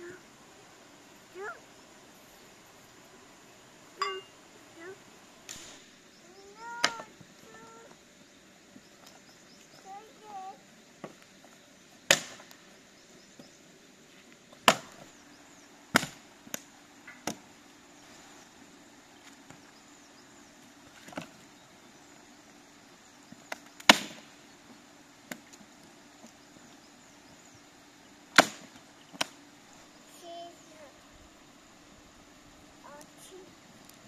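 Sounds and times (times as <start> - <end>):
dead branches snapping: 5.5 - 5.8, 23.5 - 24.3, 28.3 - 29.4.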